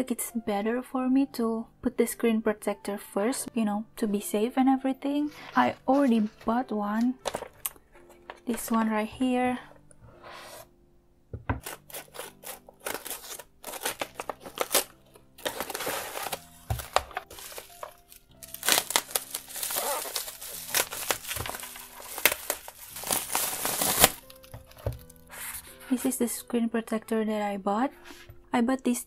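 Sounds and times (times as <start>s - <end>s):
background music: 0.0s - 29.0s
bubble wrap and envelope crinkling: 5.2s - 9.1s, 11.5s - 26.1s
scissors cutting plastic: 11.6s - 25.7s.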